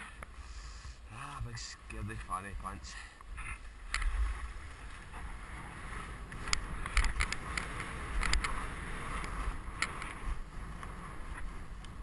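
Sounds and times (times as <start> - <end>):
wind rumble on microphone: 0.0 - 12.0
sharp clicks and scrapes: 3.4 - 4.2, 6.2 - 12.0
skis sliding over snow: 4.0 - 12.0.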